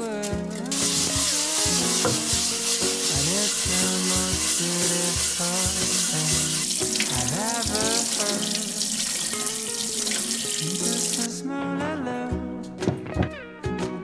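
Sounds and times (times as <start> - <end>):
instrumental music: 0.0 - 14.0
tap water splashing in sink: 0.3 - 11.3
pad scrubbing salt on wooden board: 0.8 - 7.8.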